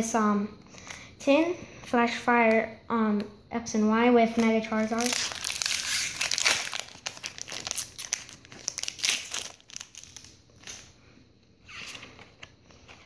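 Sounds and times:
foil wrapper crinkling: 4.7s - 10.9s.

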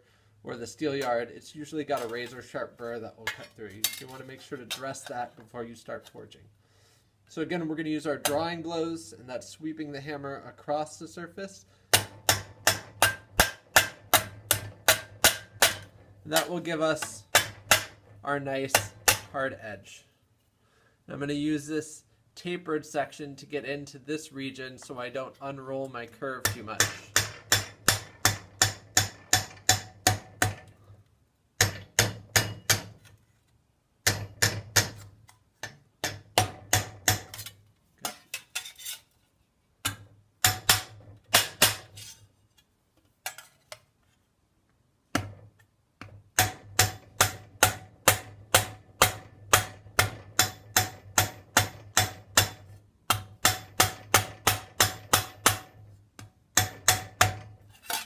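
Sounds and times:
rubber mallet striking steel sheet: 12.0s - 18.1s.

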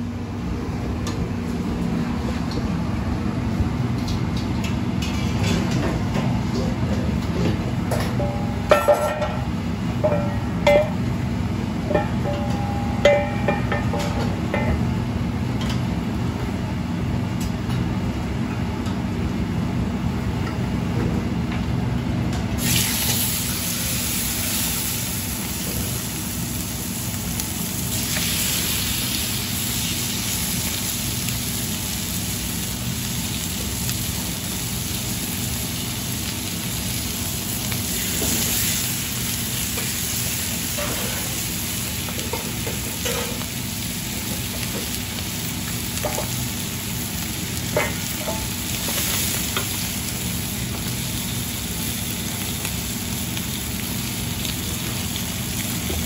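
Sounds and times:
steady low hum: 0.0s - 22.6s
chicken sizzling in hot oil: 22.6s - 56.0s.

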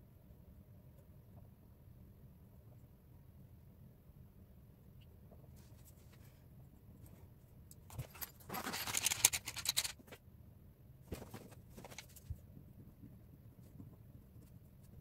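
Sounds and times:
small hard objects clattering: 7.9s - 10.1s.

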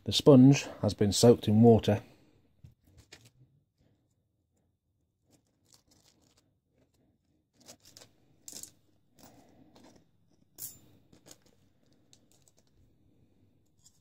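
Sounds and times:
small metal parts clicking: 7.6s - 12.8s.

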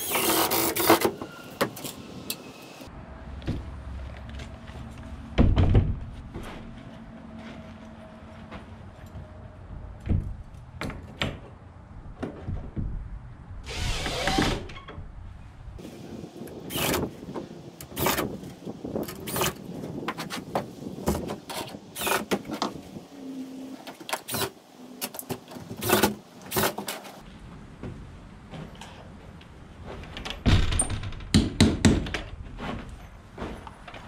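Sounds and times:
clicks and knocks of door bolts: 30.1s - 32.4s.

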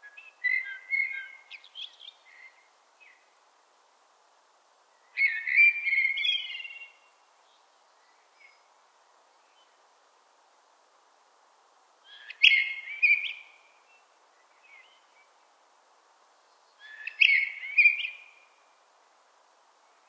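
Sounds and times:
blackbird singing: 0.0s - 3.2s, 5.2s - 7.1s, 12.1s - 13.6s, 16.8s - 18.4s.

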